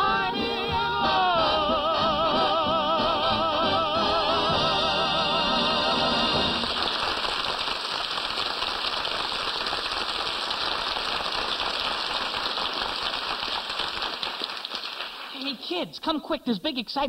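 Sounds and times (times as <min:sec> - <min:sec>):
audience applauding: 0:05.2 - 0:15.6.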